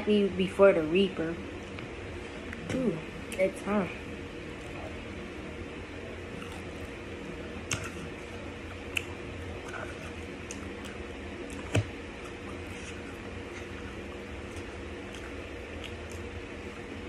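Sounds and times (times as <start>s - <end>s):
steady low hum: 0.0s - 17.0s
person chewing food: 6.2s - 17.0s.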